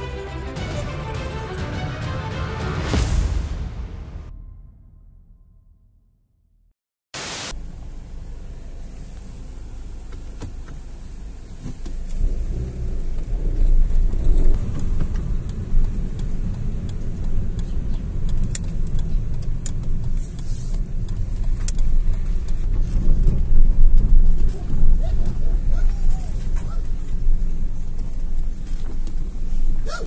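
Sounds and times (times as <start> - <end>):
tyre and engine rumble: 7.6 - 30.0.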